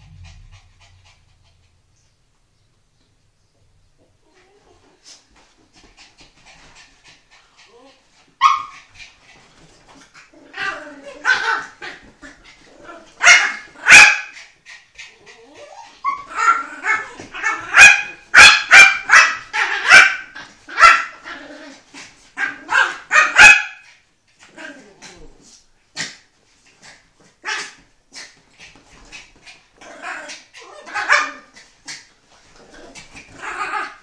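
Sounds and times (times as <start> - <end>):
dogs barking: 13.2 - 14.4, 17.4 - 21.2, 22.5 - 23.8.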